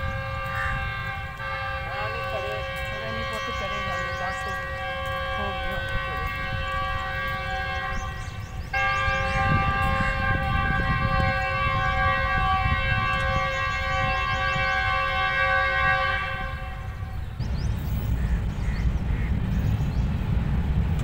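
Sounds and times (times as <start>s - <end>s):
locomotive air horn blast: 0.0s - 17.4s
low rumble: 16.3s - 21.0s.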